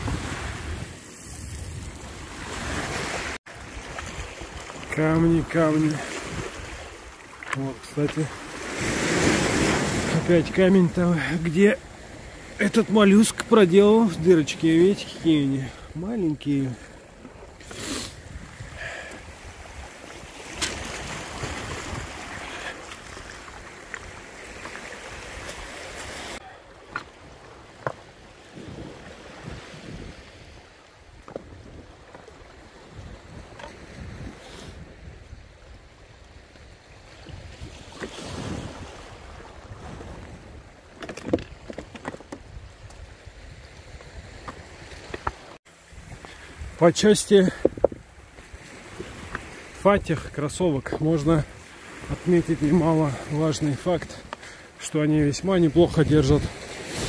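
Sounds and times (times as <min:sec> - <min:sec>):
waves washing over pebbles: 0:00.0 - 0:33.4, 0:43.5 - 0:57.0
wind buffeting microphone: 0:18.1 - 0:22.4, 0:28.4 - 0:40.8, 0:47.5 - 0:49.6.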